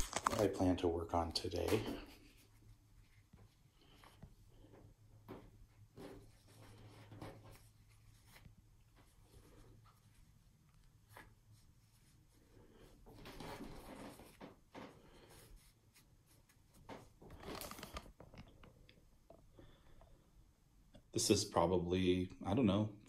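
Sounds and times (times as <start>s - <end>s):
fabric rustling and rubbing: 0.0s - 18.5s.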